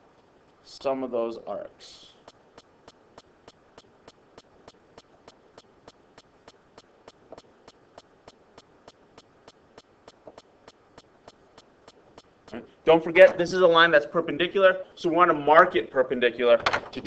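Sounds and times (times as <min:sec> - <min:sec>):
faint mechanical ticking: 0:00.0 - 0:13.3.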